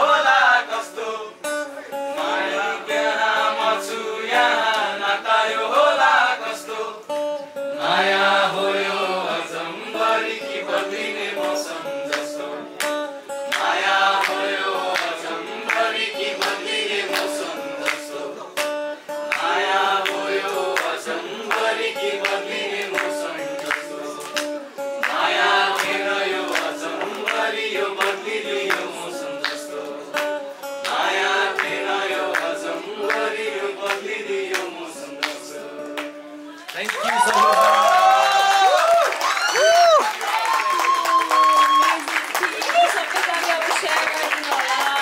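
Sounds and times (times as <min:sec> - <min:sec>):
group singing along: 0:00.0 - 0:36.5
acoustic guitar strumming: 0:00.0 - 0:36.7
hand claps: 0:10.7 - 0:45.0.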